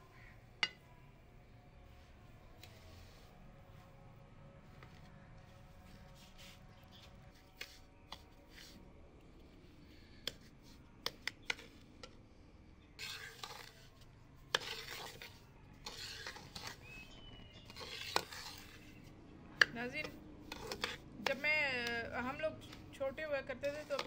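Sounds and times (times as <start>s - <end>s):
spoon scraping pot bottom: 13.0s - 24.0s.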